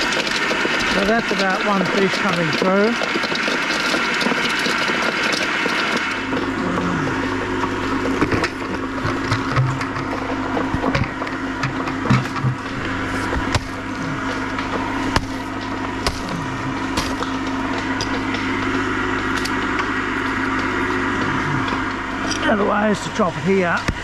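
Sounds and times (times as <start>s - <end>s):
hatchet chopping fish on wood: 15.1s - 15.4s, 16.0s - 16.4s.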